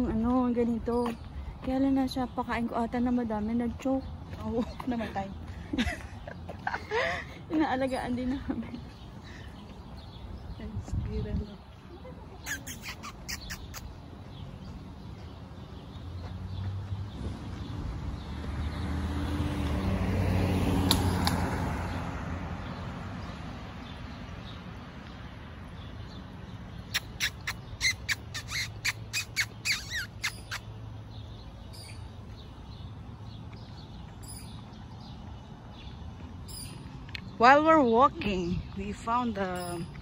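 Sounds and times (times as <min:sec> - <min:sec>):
vehicle passing: 0:13.9 - 0:40.0.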